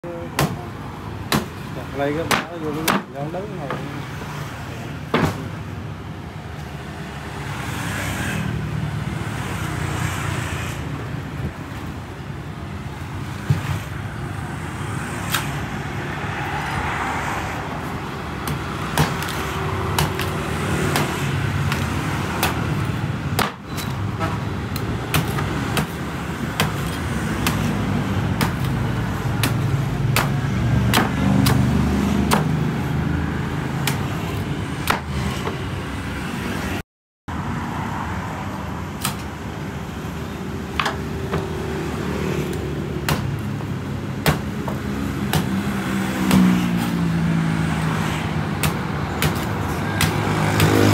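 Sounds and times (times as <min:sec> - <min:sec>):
road traffic rumble: 0:00.0 - 0:50.9
machete chopping coconut husk: 0:00.3 - 0:00.7, 0:01.3 - 0:03.1, 0:18.4 - 0:24.0, 0:24.7 - 0:32.8, 0:33.7 - 0:35.6, 0:42.4 - 0:43.6, 0:44.2 - 0:47.2, 0:48.5 - 0:50.9.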